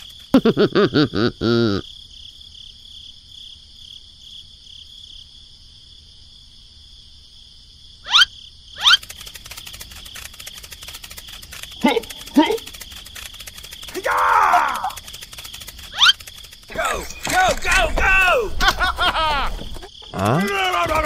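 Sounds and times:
crickets chirring: 0.0s - 21.0s
rising squeaks: 8.1s - 21.0s
sped-up cartoon voice jabbering: 11.8s - 12.8s.

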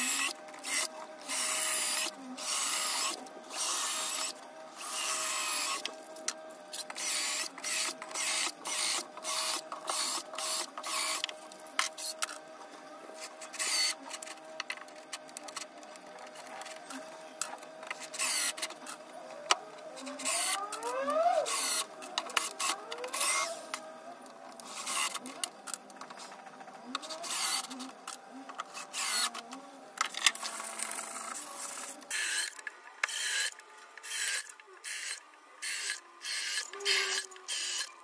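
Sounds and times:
cordless drill running in bursts: 0.0s - 5.9s, 6.8s - 11.2s, 18.2s - 18.6s, 21.4s - 22.6s, 28.8s - 29.3s, 30.6s - 37.9s.

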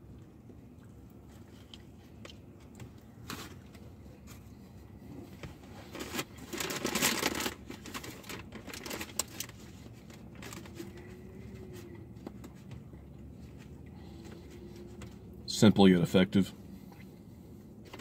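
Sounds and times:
paper wrapper crinkling: 5.7s - 11.6s.

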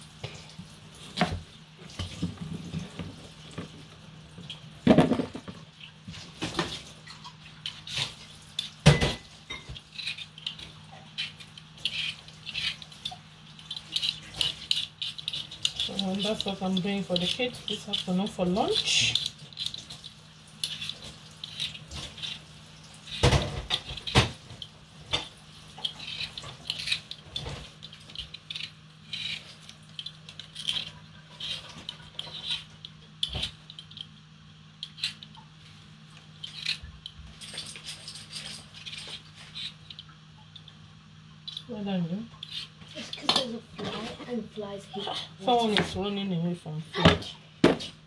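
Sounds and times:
blade scraping potato skin: 9.7s - 34.2s, 36.4s - 40.0s.

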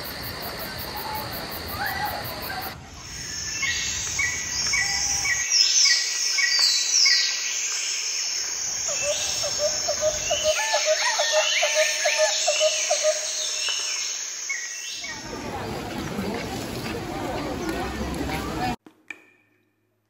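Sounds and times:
insect drone: 0.0s - 15.6s.

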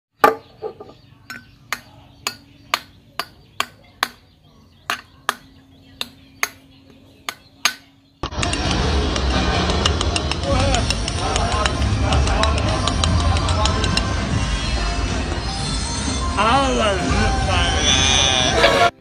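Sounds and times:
voices: 0.5s - 19.0s
loud music: 8.2s - 19.0s.

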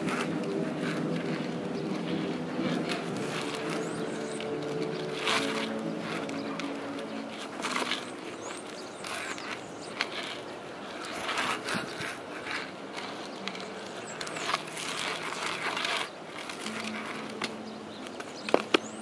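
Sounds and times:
bike tyres scrubbing on concrete: 0.0s - 19.0s
bike clicks and knocks: 16.6s - 19.0s.

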